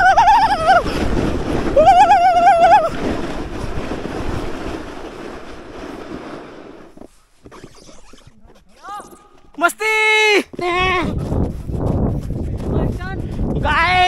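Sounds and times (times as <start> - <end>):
person yelling: 0.0 - 0.8, 1.8 - 2.9, 8.8 - 11.1
sled and wind rushing hiss: 0.0 - 7.5.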